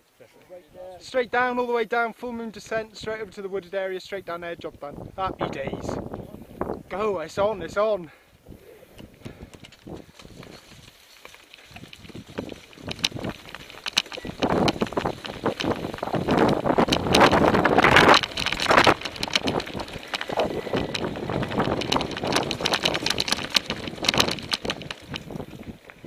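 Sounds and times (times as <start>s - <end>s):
wind rushing over microphone: 4.6s - 7.8s, 11.7s - 26.0s
bike rattling over stones: 9.0s - 26.0s.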